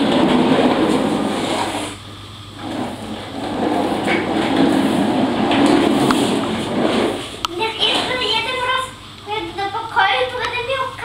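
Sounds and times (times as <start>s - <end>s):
toy wheels rolling on hard floor: 2.6s - 7.2s.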